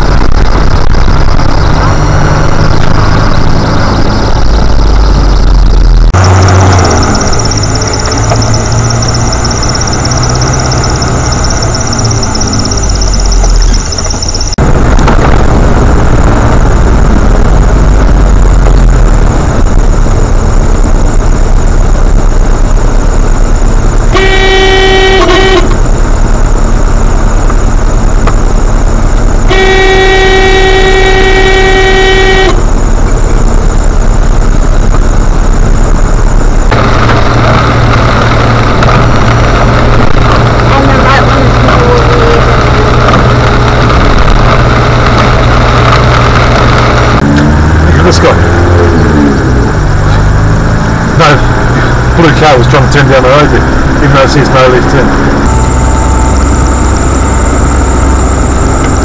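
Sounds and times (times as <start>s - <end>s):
car engine and road noise: 0.0s - 59.0s
car horn blasts: 24.1s - 25.8s, 29.5s - 32.7s.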